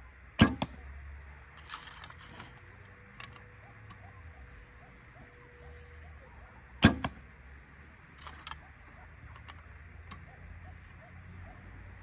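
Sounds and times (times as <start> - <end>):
soft arrow clicks: 1.6 - 4.2, 8.1 - 11.0.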